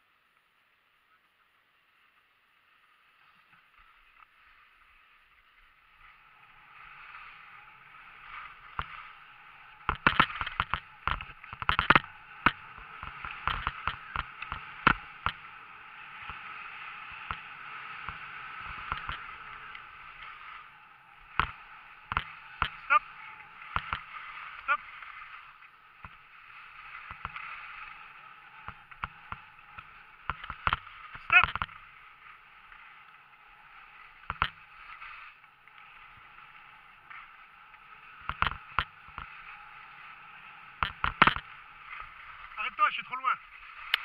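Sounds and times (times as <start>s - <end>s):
skis hissing over snow: 1.7s - 44.0s
sharp knocks and clatters: 9.8s - 15.4s, 21.3s - 22.9s, 28.6s - 31.8s, 38.2s - 39.4s, 40.8s - 41.5s.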